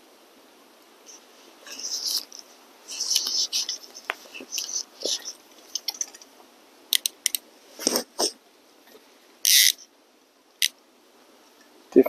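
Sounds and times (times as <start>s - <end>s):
loud ratcheting rasp: 9.5s - 9.8s.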